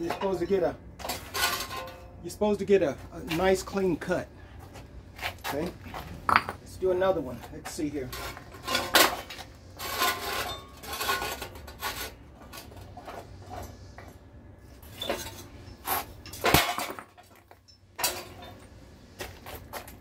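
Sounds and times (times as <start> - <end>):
brick scraping on steel: 7.2 - 13.9, 14.7 - 17.4.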